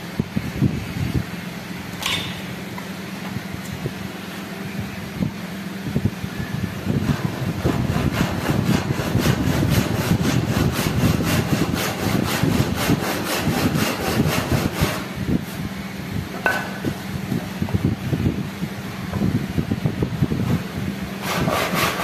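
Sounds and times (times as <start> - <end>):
hand saw cutting wood: 7.0 - 15.2, 21.2 - 22.0.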